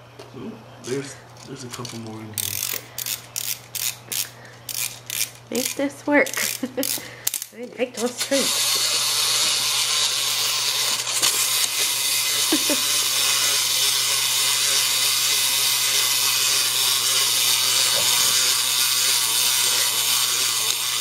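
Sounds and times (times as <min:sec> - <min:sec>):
clockwork toy motor whirring: 0:01.6 - 0:21.0.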